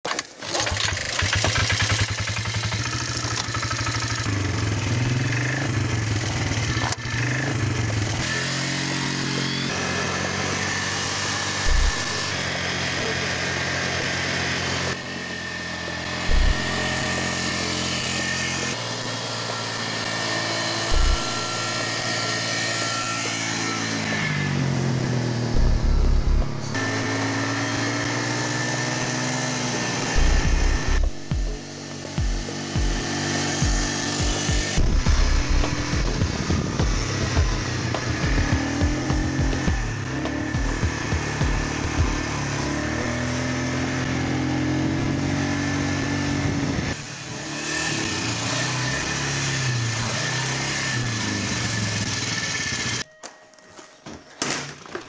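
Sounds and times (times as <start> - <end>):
atv engine revving: 0.0 - 53.0
loud low thumps: 11.7 - 12.3, 16.3 - 17.1, 20.9 - 21.7, 25.5 - 27.0, 30.2 - 42.3.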